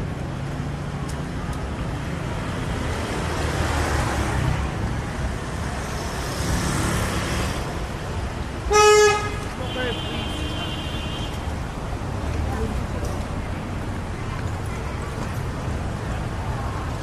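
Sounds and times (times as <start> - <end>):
street traffic: 0.0 - 17.0.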